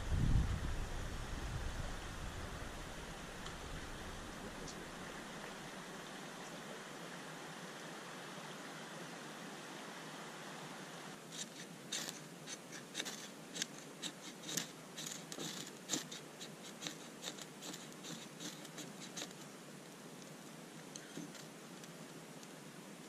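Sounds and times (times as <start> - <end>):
ferro rod scraped with striker: 11.3 - 19.4.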